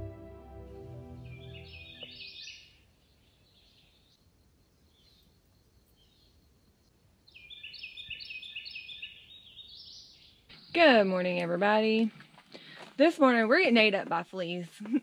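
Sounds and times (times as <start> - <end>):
quiet woodland background: 0.0 - 15.0
songbird singing: 0.8 - 12.8
faint bird chirps: 1.2 - 10.8.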